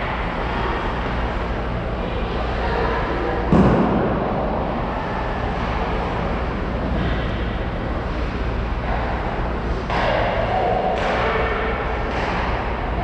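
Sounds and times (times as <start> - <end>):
low hum of ice rink: 0.0 - 13.0
ice hockey play noise: 8.0 - 13.0.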